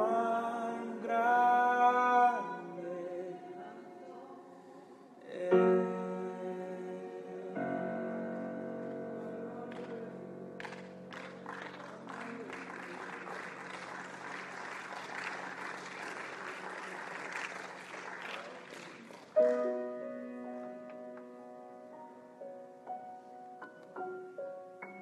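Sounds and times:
keyboard chord and notes: 5.4 - 12.5, 19.4 - 25.0
audience applauding: 10.6 - 19.9.

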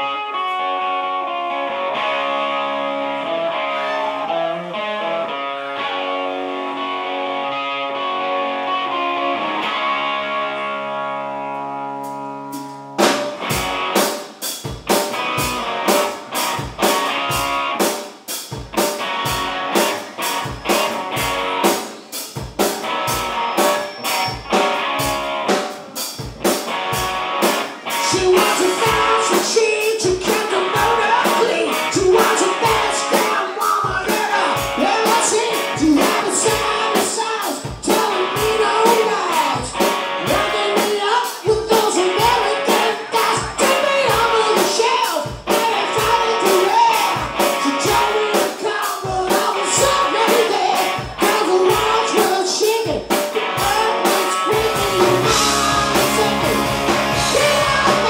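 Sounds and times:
bass guitar: 0.0 - 58.0
distorted electric guitar chords: 0.0 - 58.0
rock drum beat: 11.9 - 58.0.

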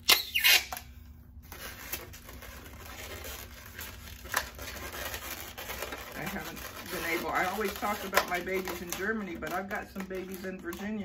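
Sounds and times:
balloon squeak: 0.0 - 0.9
rubber balloons rubbing and crinkling: 1.4 - 11.0.

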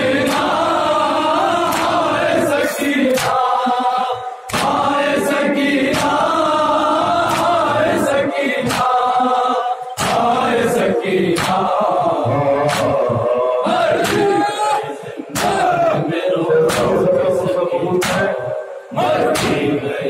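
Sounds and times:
men chanting a lament: 0.0 - 20.0
hands slapping chests: 0.2 - 0.6, 1.6 - 2.1, 3.1 - 3.5, 4.5 - 5.0, 5.8 - 6.4, 7.2 - 7.6, 8.6 - 9.0, 10.0 - 10.5, 11.2 - 11.8, 12.6 - 13.2, 14.0 - 14.4, 15.3 - 15.7, 16.7 - 17.0, 18.0 - 18.3, 19.2 - 19.6.

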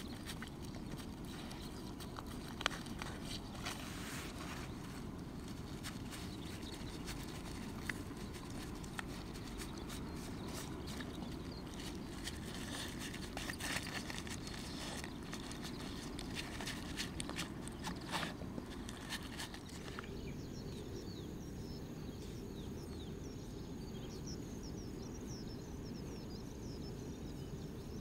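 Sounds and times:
puppy chewing: 0.0 - 20.2
low background rumble: 0.0 - 28.0.

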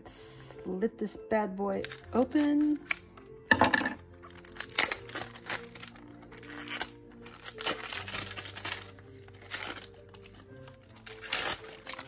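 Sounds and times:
soft background music: 0.0 - 12.0
wrapping paper crinkling: 1.8 - 3.3, 4.2 - 12.0.

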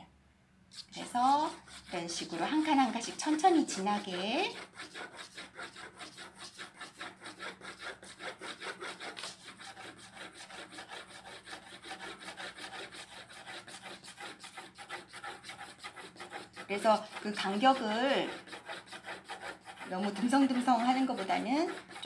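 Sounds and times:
pencil scratching on paper: 0.8 - 22.0.

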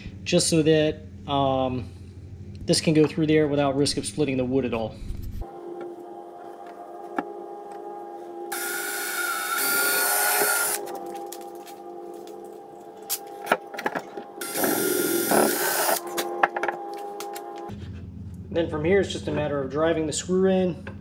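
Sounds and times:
drill bit cutting wood: 8.5 - 10.9, 14.4 - 16.2
cordless drill whining: 8.5 - 11.0, 14.4 - 16.2.

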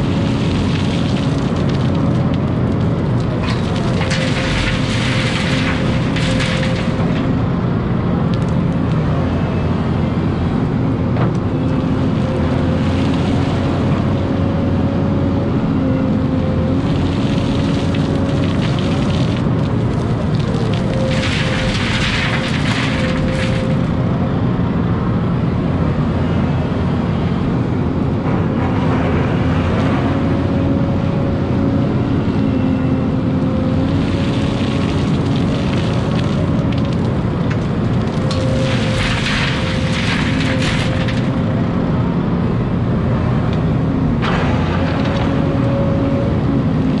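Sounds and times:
soil and gravel against steel bucket: 0.0 - 7.3, 16.8 - 23.9, 33.9 - 41.4
excavator diesel engine running: 0.0 - 47.0.

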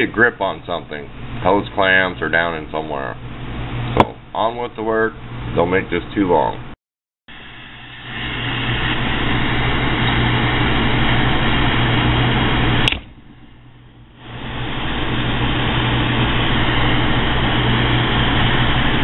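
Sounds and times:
gas torch hissing: 7.3 - 13.0, 14.2 - 19.0
sharp click: 12.8 - 13.1.

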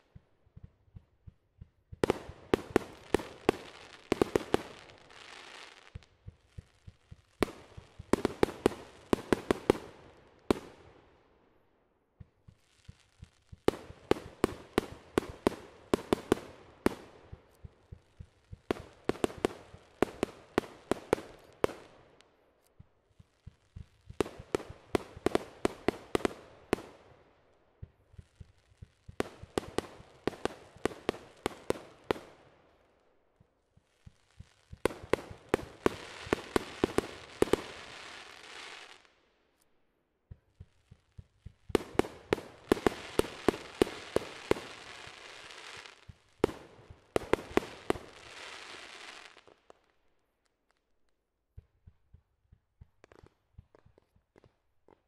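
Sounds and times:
fireworks bangs: 0.0 - 10.8, 33.7 - 39.1, 40.3 - 49.8
fireworks crackle: 2.0 - 10.6, 33.6 - 39.2, 40.4 - 49.8.

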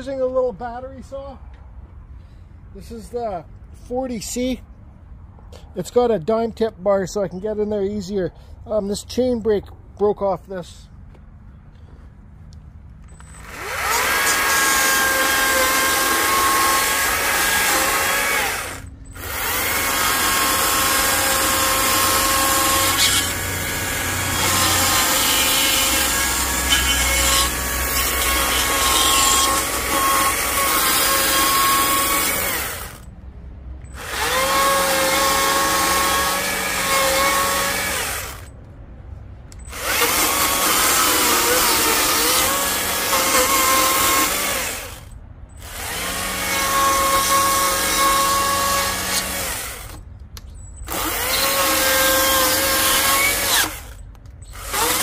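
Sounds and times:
electric chainsaw cutting wood: 13.2 - 33.0, 33.9 - 38.5, 39.7 - 50.0, 50.9 - 55.0.

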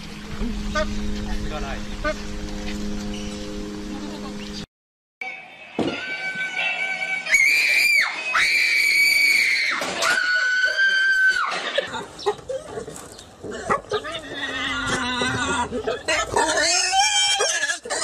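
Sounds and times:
high-pitched human screams: 7.2 - 11.6.

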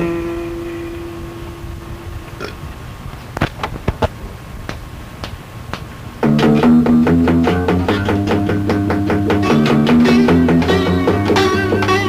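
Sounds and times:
tape hiss: 0.0 - 12.0
guitar picking quick notes: 6.2 - 12.0
rock band playing: 6.2 - 12.0.

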